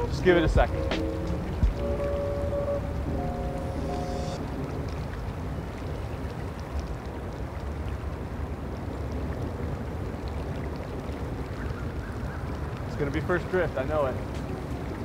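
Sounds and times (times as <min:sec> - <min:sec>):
river flowing: 0:00.0 - 0:08.9
wind rumble on microphone: 0:04.4 - 0:13.0.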